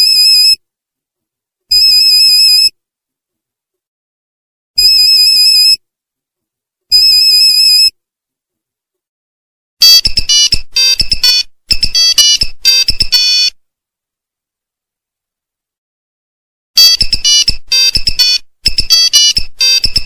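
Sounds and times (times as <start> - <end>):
long phone beeps: 9.8 - 13.6, 16.8 - 20.0.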